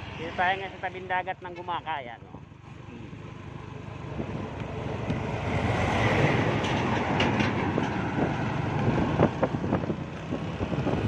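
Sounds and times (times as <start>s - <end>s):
truck passing close by: 3.4s - 11.0s
trailer knocks and rattles: 5.0s - 11.0s.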